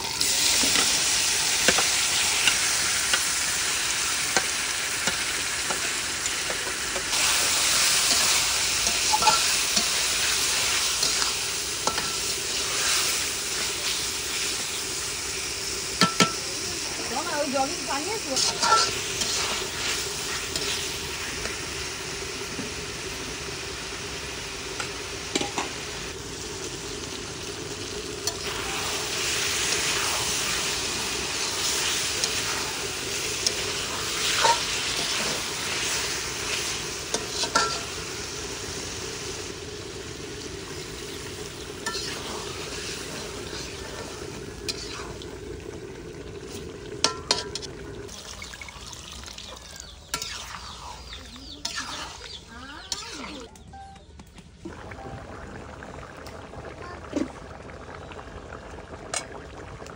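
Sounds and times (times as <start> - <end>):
fish sizzling in a wok: 0.0 - 53.8, 54.8 - 59.9
metal spatula scraping a pan: 7.2 - 13.0, 18.3 - 20.8, 34.2 - 35.9, 37.1 - 38.0, 41.8 - 42.5, 44.7 - 45.1, 51.6 - 53.3.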